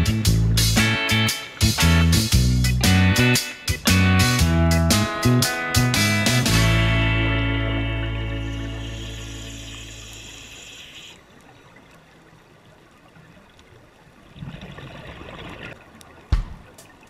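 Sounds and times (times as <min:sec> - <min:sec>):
backing music: 0:00.0 - 0:10.0
low hiss: 0:06.7 - 0:13.2
scuba regulator exhaust bubbles: 0:08.2 - 0:11.7, 0:14.2 - 0:16.5.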